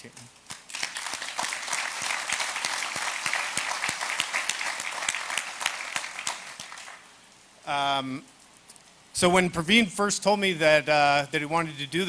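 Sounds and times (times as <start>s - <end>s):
audience applauding: 0.5s - 7.1s.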